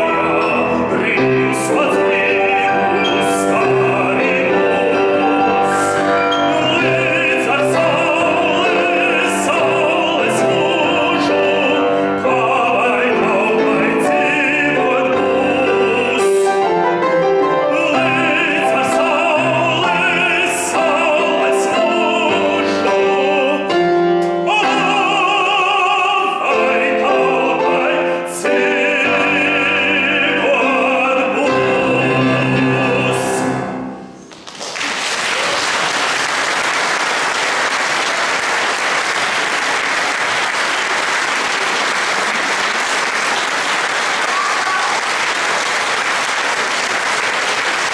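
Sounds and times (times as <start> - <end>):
man singing classical song: 0.0 - 34.2
grand piano accompaniment: 0.0 - 47.9
audience applause: 34.3 - 47.9.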